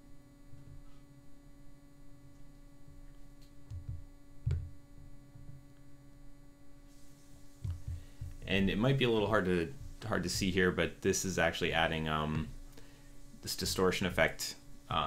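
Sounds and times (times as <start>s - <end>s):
low electrical hum: 0.0s - 15.0s
soft low thumps: 3.7s - 5.7s, 7.0s - 10.8s, 11.7s - 12.7s.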